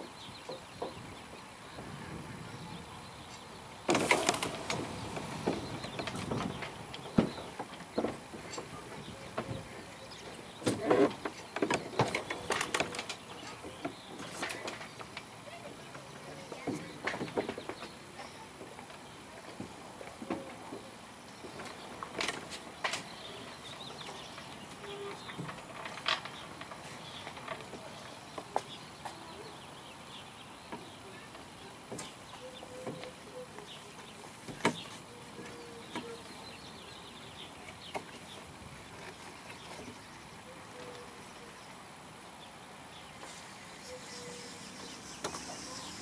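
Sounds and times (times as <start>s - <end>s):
faint bird chirps: 43.0s - 46.0s.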